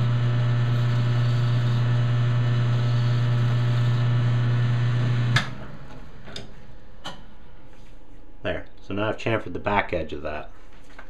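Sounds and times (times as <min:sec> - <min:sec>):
metal lathe humming: 0:00.0 - 0:05.4
hand file on spinning workpiece: 0:02.6 - 0:04.0
lathe switch click: 0:05.3 - 0:05.6.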